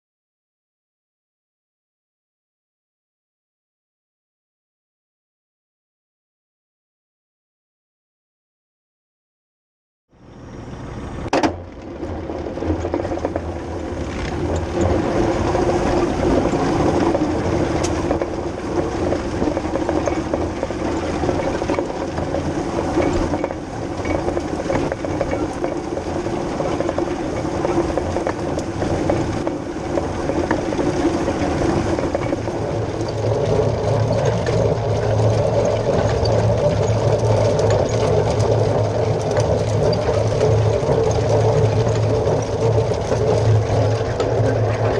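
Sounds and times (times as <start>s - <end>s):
tractor engine running: 10.1s - 44.9s
hay rake rotors clattering: 10.3s - 44.9s.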